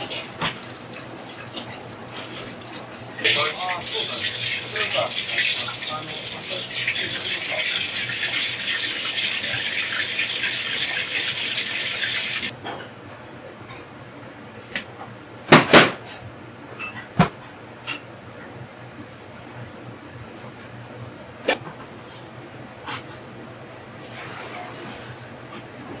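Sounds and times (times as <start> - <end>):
tap running water: 0.0 - 12.5.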